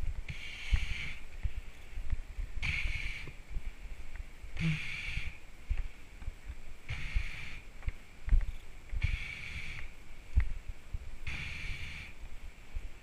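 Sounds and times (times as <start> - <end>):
hissing breath: 0.3 - 1.3, 2.6 - 3.4, 4.6 - 5.4, 6.9 - 7.7, 9.0 - 10.0, 11.2 - 12.2
footsteps on grass: 5.6 - 6.8.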